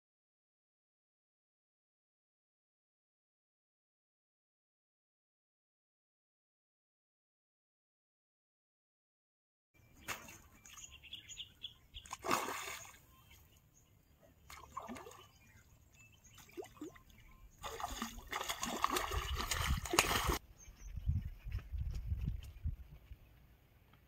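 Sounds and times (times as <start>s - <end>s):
fish splashing in water: 12.0s - 13.0s, 17.6s - 20.4s.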